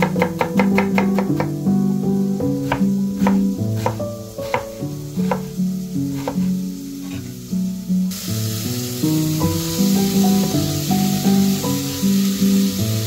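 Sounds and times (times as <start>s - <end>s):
knife chopping on wooden board: 0.0s - 1.6s, 2.6s - 7.3s
background music: 0.0s - 13.0s
bacon and onion sizzling: 0.0s - 13.0s.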